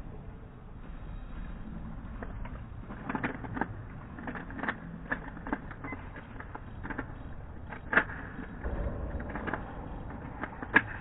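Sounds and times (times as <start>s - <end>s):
hall hum: 6.3s - 11.0s.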